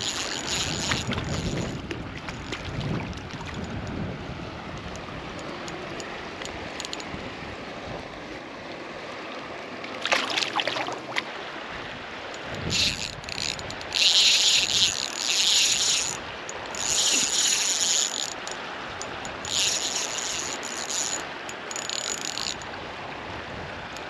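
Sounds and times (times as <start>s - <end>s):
stream water flowing: 0.0s - 24.0s
sharp rattling clicks: 12.6s - 22.6s.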